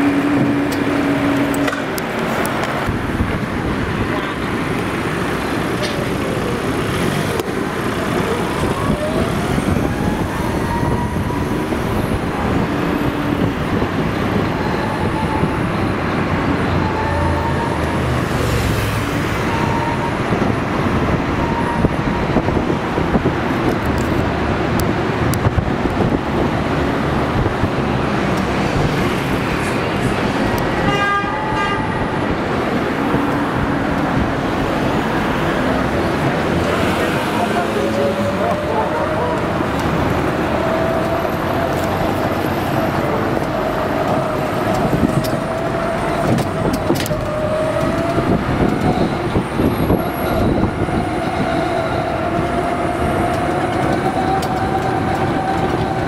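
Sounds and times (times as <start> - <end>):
road and traffic noise: 0.0 - 56.0
vehicle horn honk: 30.8 - 31.9.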